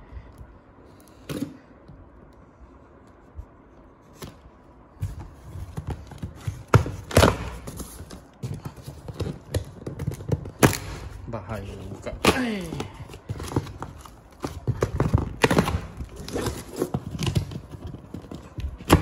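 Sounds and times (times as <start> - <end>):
cardboard scraping and rustling: 5.0 - 10.6, 12.7 - 19.0.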